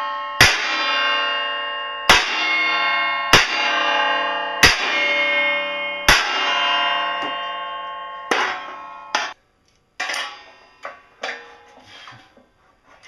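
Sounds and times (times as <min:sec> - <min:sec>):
metal plate ringing: 0:00.0 - 0:09.4, 0:10.0 - 0:12.0
hammer blows on metal sheet: 0:03.3 - 0:05.3, 0:06.0 - 0:07.5
light metal clanks: 0:10.0 - 0:12.4.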